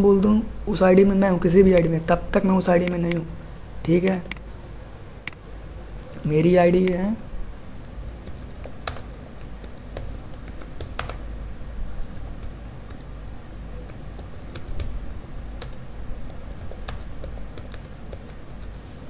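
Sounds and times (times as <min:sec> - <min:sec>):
low steady hum: 0:00.0 - 0:19.0
keyboard typing clicks: 0:02.8 - 0:03.2, 0:08.2 - 0:11.2, 0:12.3 - 0:15.0, 0:15.6 - 0:18.8.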